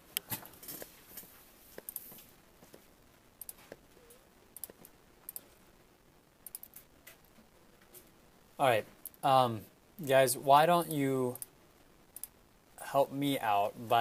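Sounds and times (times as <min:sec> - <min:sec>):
keyboard and mouse clicks: 0:03.4 - 0:05.5, 0:06.4 - 0:07.3.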